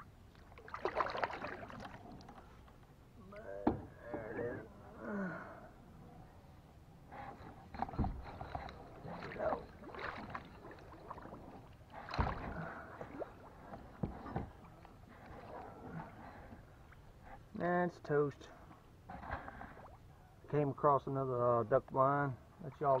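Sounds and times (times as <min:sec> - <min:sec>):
paddle splashes and knocks: 0:00.4 - 0:02.5, 0:07.8 - 0:14.7.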